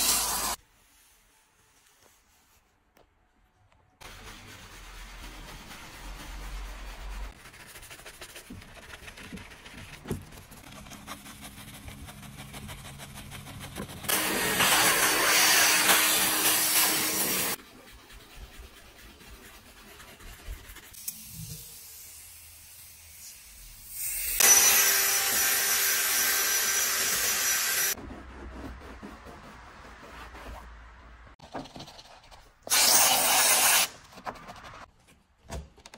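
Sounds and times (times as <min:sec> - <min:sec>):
brush scrubbing: 0:04.0 - 0:21.1.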